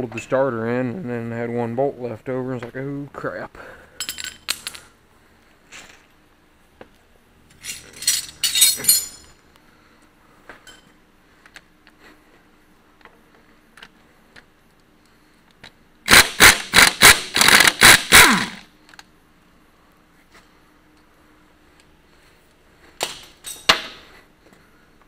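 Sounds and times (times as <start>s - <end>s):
hand tools clinking on metal: 7.5s - 9.4s, 23.2s - 23.8s.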